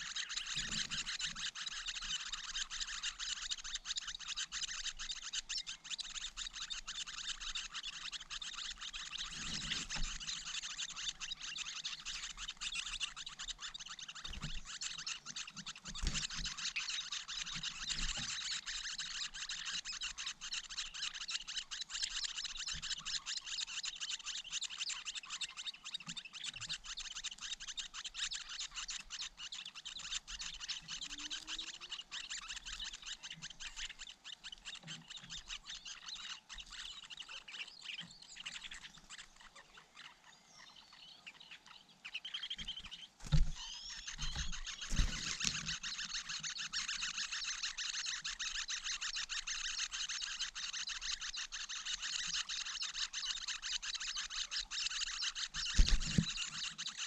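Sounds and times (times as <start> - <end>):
nestlings chirping: 0.0 - 57.0.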